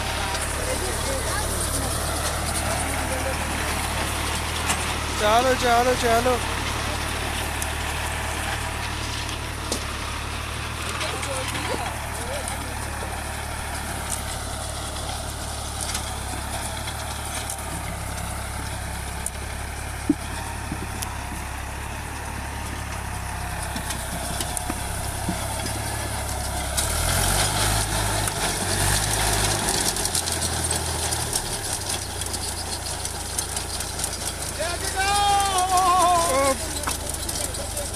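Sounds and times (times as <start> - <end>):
potato digger clattering: 0.0 - 37.9
tractor engine running: 0.0 - 37.9.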